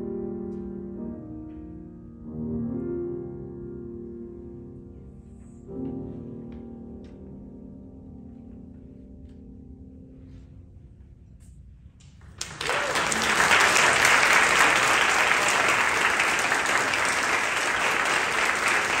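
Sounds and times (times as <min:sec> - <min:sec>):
audience applause: 0:12.4 - 0:19.0.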